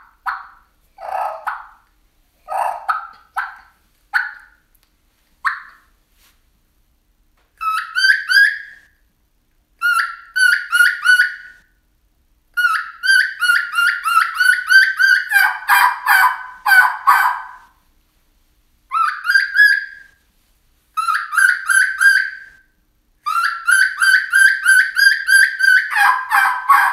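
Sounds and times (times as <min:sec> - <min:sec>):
turkey call yelping: 0:00.0 - 0:01.8, 0:02.5 - 0:04.6, 0:05.4 - 0:05.9, 0:07.6 - 0:08.8, 0:09.8 - 0:11.6, 0:12.6 - 0:17.7, 0:18.9 - 0:20.2, 0:21.0 - 0:22.6, 0:23.2 - 0:26.9.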